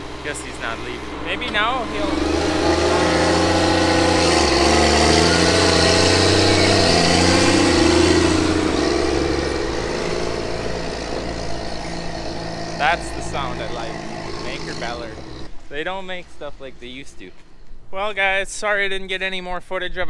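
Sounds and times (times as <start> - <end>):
tractor diesel engine: 0.0 - 17.3.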